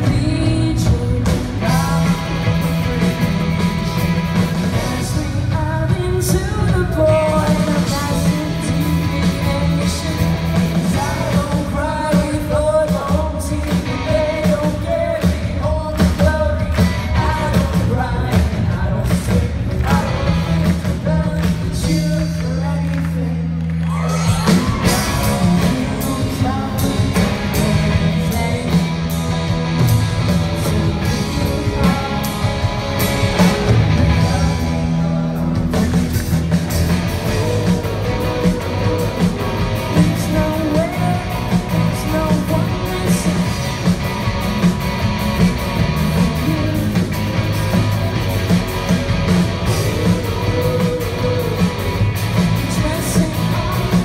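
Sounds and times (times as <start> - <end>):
woman singing: 0.0 - 2.9, 4.8 - 22.8, 52.6 - 54.0
bass guitar: 0.0 - 54.0
drum kit: 0.0 - 54.0
electric guitar: 0.0 - 54.0.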